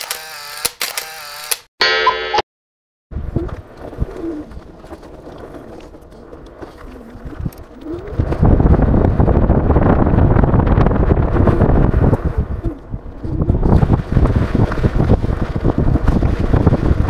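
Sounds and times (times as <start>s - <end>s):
wind on microphone: 3.1s - 17.0s
pigeon cooing: 3.4s - 4.6s, 6.8s - 8.2s.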